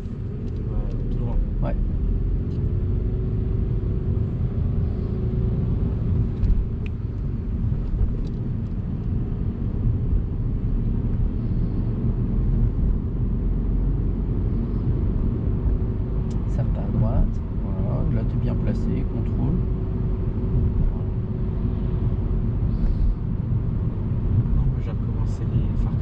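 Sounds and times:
car engine and tyre rumble: 0.0s - 26.0s
faint drone: 10.6s - 26.0s.

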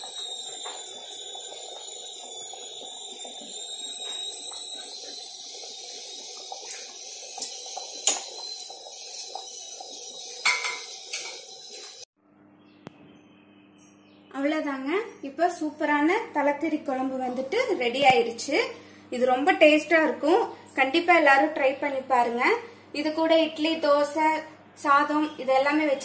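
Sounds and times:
curry bubbling in a pan: 0.0s - 12.1s.

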